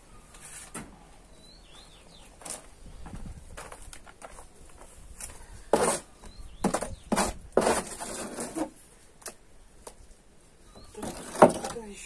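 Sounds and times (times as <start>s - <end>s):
plaster scraping with hand tool: 5.7s - 8.8s, 10.9s - 11.8s.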